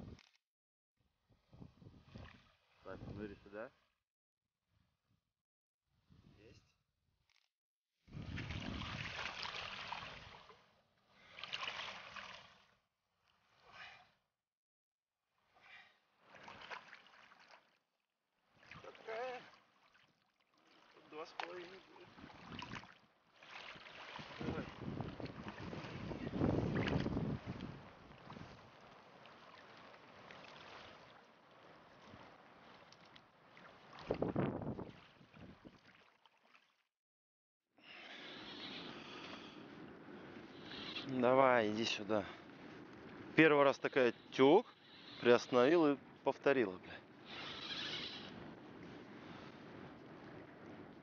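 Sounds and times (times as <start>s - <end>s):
loud water splash: 8.2s - 10.5s
shallow water splashing: 8.2s - 14.2s, 15.5s - 17.8s, 18.4s - 36.9s.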